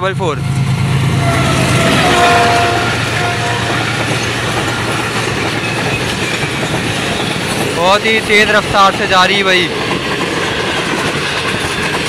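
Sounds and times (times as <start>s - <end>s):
locomotive engine drone: 0.0s - 8.8s
train coaches rolling over rails: 0.0s - 12.0s
train horn: 1.1s - 4.0s.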